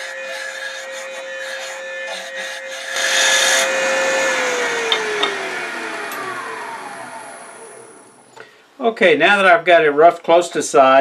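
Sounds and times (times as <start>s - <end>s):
gouge cutting wood: 0.0s - 6.5s
wood lathe whine: 0.0s - 8.4s.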